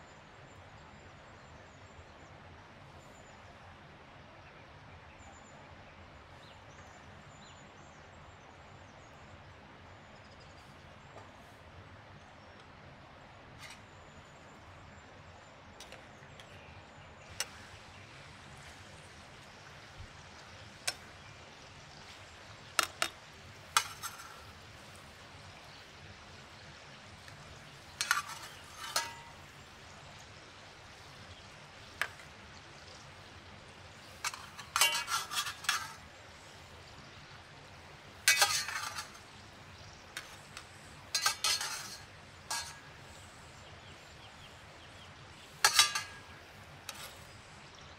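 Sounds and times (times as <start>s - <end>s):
faint sizzling in oil: 15.8s - 47.9s
metal ladle clinking on bowl: 22.8s - 24.5s, 28.0s - 29.5s, 34.2s - 36.0s, 38.2s - 39.3s, 40.2s - 43.2s, 45.6s - 47.2s.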